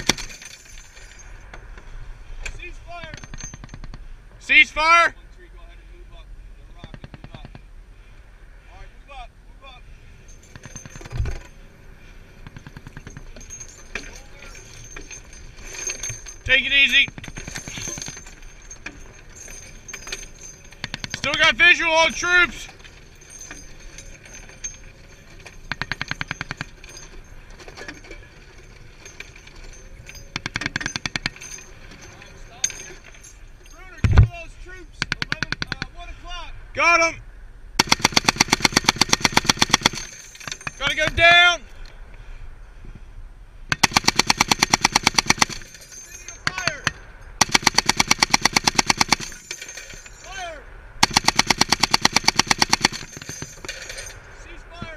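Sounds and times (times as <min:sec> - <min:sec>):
machine gun bursts: 0:00.0 - 0:00.6, 0:12.6 - 0:18.4, 0:29.0 - 0:31.6, 0:37.8 - 0:41.1, 0:43.7 - 0:50.0, 0:51.0 - 0:54.2
short ringing tones: 0:10.0 - 0:34.2
heavy machine-gun fire: 0:37.8 - 0:40.2, 0:43.7 - 0:45.7, 0:47.4 - 0:49.4, 0:51.0 - 0:53.4.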